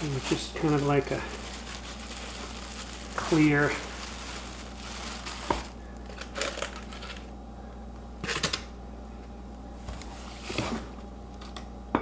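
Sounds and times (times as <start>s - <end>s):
plastic bag rustling: 0.0s - 7.3s.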